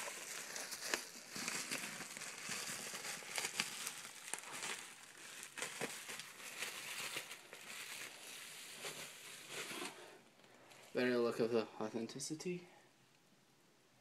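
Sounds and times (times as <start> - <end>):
packaging crinkling: 0.0 - 11.0.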